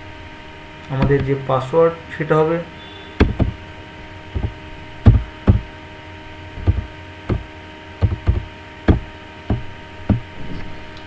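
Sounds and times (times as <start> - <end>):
heavy keyboard key taps: 1.0 - 1.4, 3.2 - 3.6, 4.4 - 5.6, 6.6 - 10.2.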